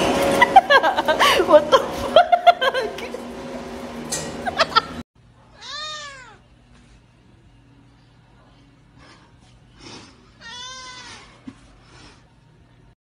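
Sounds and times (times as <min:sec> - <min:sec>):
cat meowing: 0:05.6 - 0:06.5, 0:10.4 - 0:11.2.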